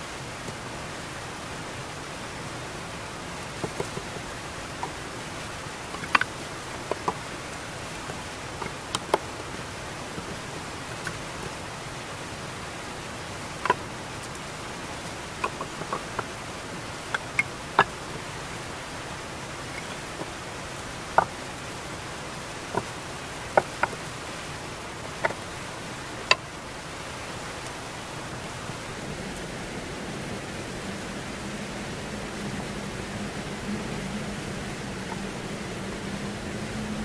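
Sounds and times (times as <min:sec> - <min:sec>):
steady hiss: 0:00.0 - 0:37.0
wooden logs knocking together: 0:03.5 - 0:11.7, 0:13.3 - 0:18.8, 0:19.6 - 0:20.4, 0:21.0 - 0:21.6, 0:22.5 - 0:24.2, 0:25.1 - 0:25.4.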